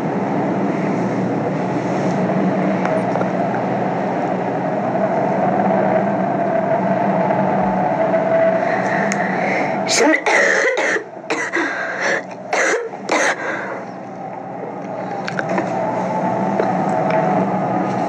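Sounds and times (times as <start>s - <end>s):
steady background hum: 0.0s - 18.0s
woman coughing: 9.9s - 13.5s.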